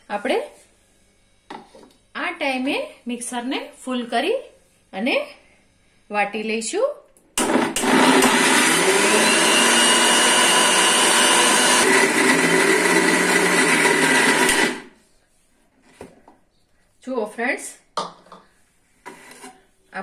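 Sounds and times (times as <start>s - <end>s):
mixer grinder motor running: 7.4s - 14.9s.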